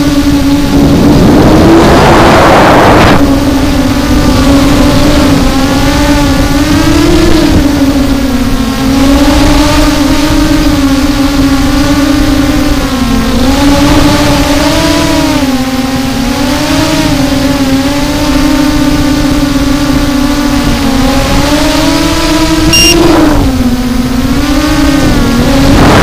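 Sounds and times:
rough rushing noise: 0.0 - 7.6, 22.4 - 26.0
drone motors whining: 0.0 - 26.0.

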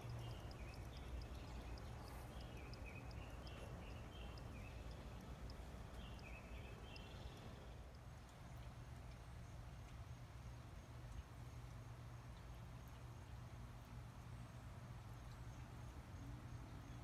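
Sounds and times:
fast high ticking: 0.0 - 8.3.

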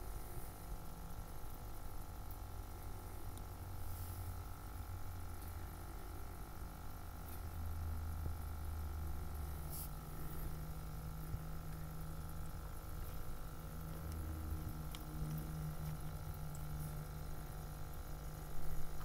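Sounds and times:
small motor humming: 7.3 - 19.0.

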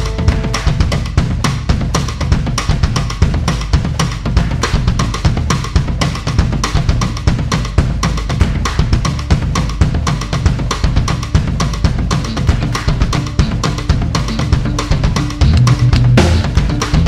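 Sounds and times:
held notes: 0.0 - 1.1, 14.8 - 17.0
heavy bass line: 0.0 - 2.2, 11.2 - 17.0
drum kit groove: 0.0 - 17.0.

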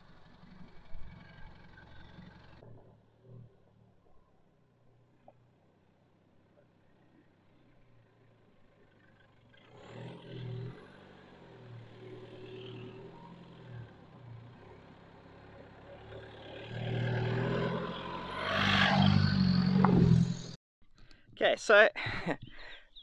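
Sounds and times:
diesel pickup engine running: 0.0 - 16.9.

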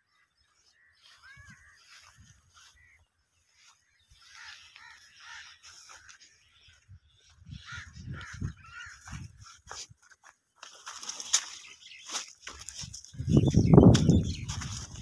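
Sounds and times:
footsteps through leafy plants: 0.5 - 15.0
crow cawing: 4.2 - 6.2, 7.5 - 9.4.

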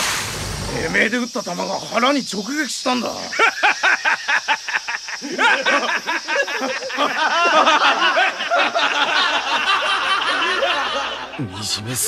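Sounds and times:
man laughing loudly: 3.3 - 11.5.

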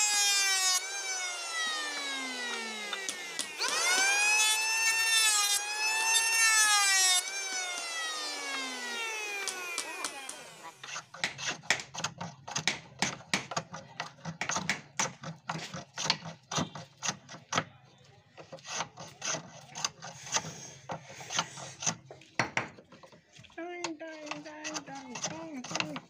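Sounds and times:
electric hand planer winding down: 0.0 - 11.1
hand plane scraping wood: 6.0 - 17.6, 18.4 - 23.3, 24.0 - 26.0.

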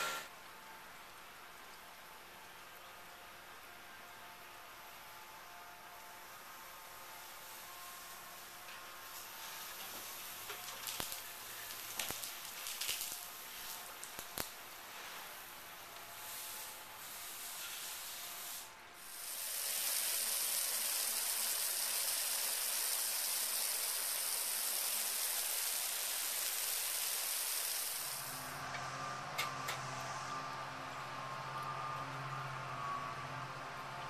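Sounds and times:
water spraying from hose: 6.2 - 28.6.

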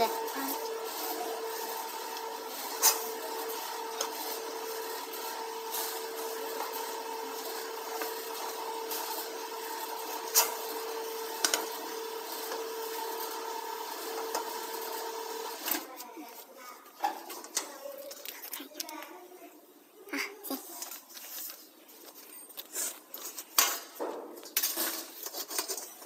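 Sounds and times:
machine motor hum: 0.0 - 15.7
sheet metal rubbing in rollers: 0.0 - 15.7.

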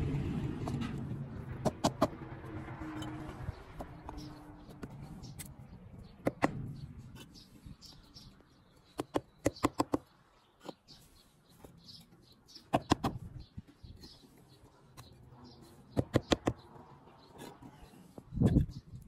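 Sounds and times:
low rumble: 0.0 - 3.9.

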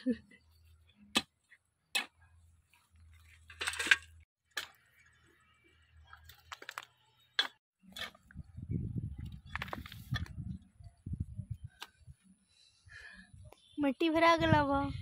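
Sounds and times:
hoe chopping stony soil: 1.1 - 2.2.

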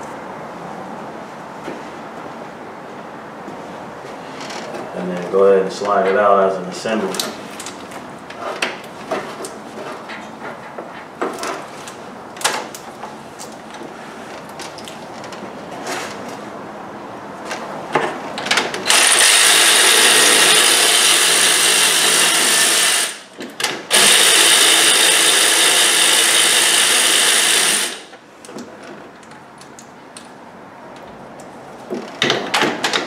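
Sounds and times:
handheld power tool running: 18.9 - 23.3, 23.9 - 28.1.

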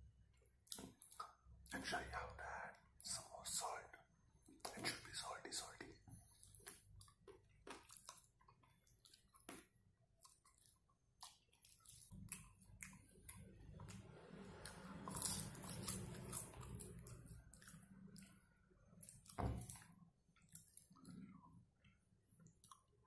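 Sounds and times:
person chewing: 5.8 - 23.0.

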